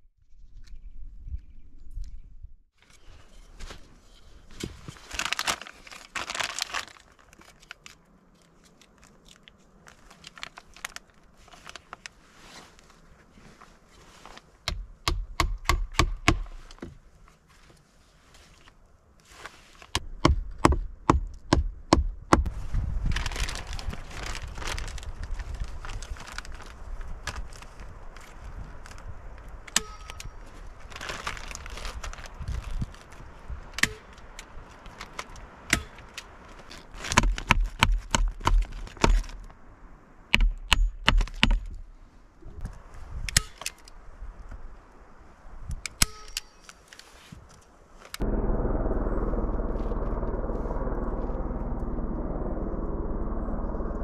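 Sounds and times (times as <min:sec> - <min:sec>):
foil sheeting crinkling: 0:04.6 - 0:08.0, 0:22.5 - 0:29.1, 0:30.4 - 0:33.4.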